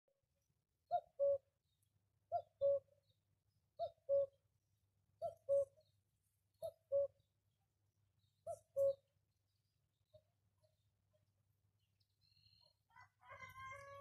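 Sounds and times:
cuckoo calling: 0:00.9 - 0:01.4, 0:02.3 - 0:03.0, 0:03.8 - 0:04.4, 0:05.2 - 0:05.9, 0:06.6 - 0:07.2, 0:08.4 - 0:09.1.

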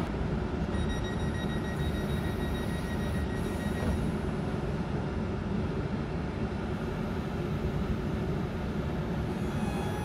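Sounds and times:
electric train rumble and hum: 0:00.0 - 0:10.0
faint high whine: 0:00.7 - 0:04.2.

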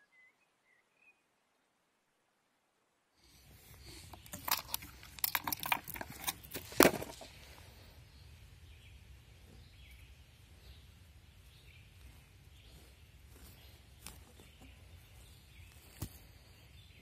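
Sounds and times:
camera handling clicks and knocks: 0:04.0 - 0:07.3.

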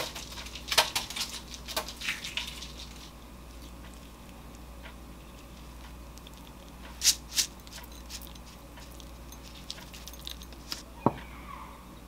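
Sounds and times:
seeds rattling in a shaker: 0:06.2 - 0:10.8.

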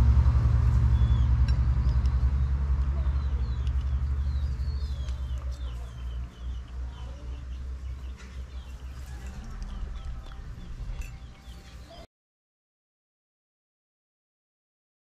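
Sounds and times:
low rumble: 0:00.0 - 0:12.1
birds chirping: 0:00.6 - 0:12.1.

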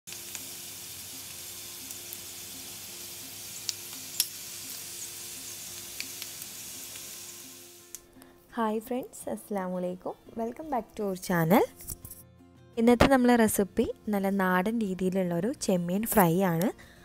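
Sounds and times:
prawns sizzling in a pan: 0:00.1 - 0:08.0
oil popping and crackling: 0:03.6 - 0:04.8, 0:05.4 - 0:07.1.

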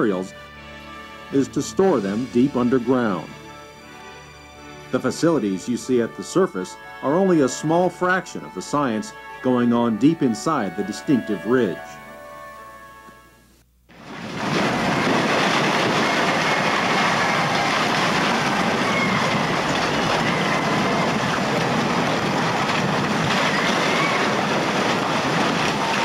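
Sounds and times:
machine grinding through rock: 0:14.0 - 0:26.0.

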